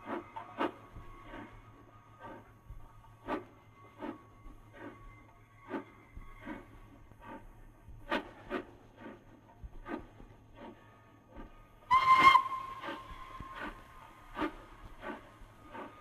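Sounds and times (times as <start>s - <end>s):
steam locomotive exhaust beats: 0.0s - 16.0s
steam whistle blast: 11.9s - 13.7s.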